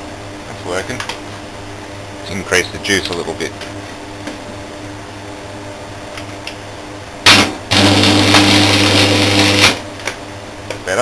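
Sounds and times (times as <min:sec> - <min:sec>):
welder transformer humming: 0:00.0 - 0:11.0
welding arc buzzing and crackling: 0:07.2 - 0:10.1.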